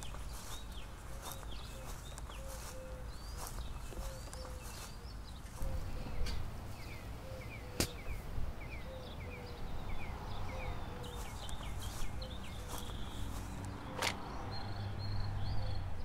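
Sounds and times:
low bird call: 0.0 - 9.6
birds chirping: 0.0 - 16.0.

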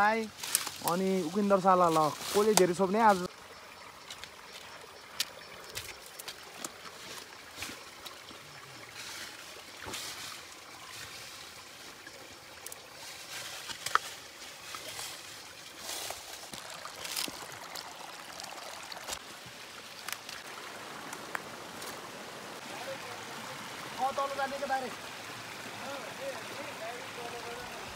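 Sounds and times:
stream trickling over rocks: 0.0 - 27.9
stick splashing and knocking stones: 4.1 - 8.2, 12.6 - 15.2.

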